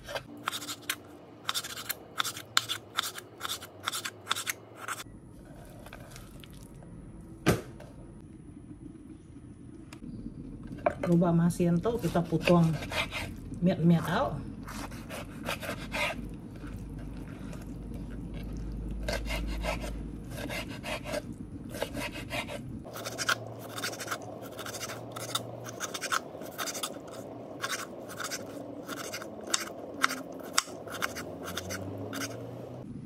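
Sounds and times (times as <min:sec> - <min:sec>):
knife chopping on wooden board: 0:27.6 - 0:32.4.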